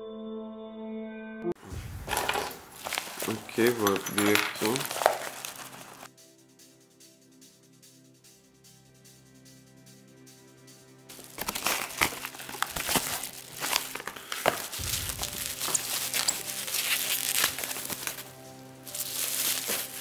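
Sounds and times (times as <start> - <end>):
soft background music: 0.0 - 20.0
bubble wrap crinkling: 1.7 - 6.1, 11.1 - 20.0.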